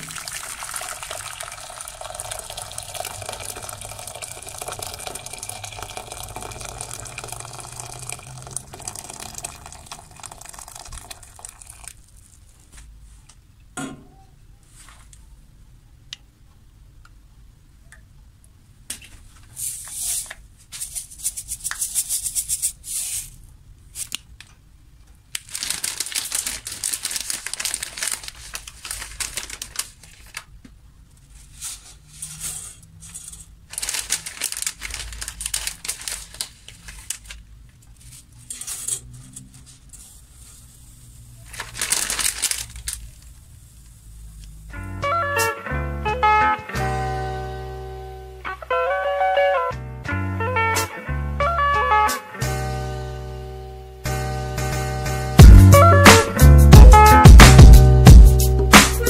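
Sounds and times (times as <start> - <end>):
dry rattling and crinkling: 0.2 - 12.8, 25.3 - 30.6, 31.4 - 39.1, 41.4 - 43.5.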